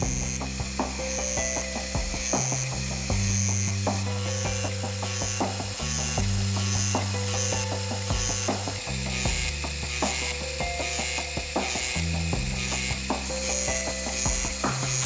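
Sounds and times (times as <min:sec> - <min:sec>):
background music with low chords: 0:00.0 - 0:15.0.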